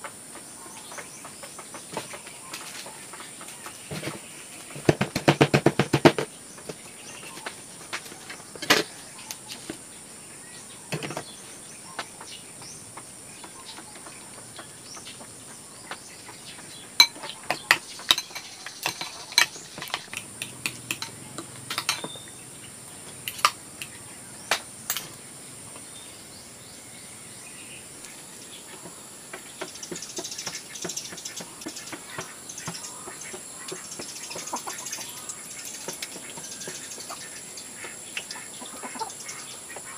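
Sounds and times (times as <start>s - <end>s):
utensils clinking on pan and dishes: 17.0s - 22.3s.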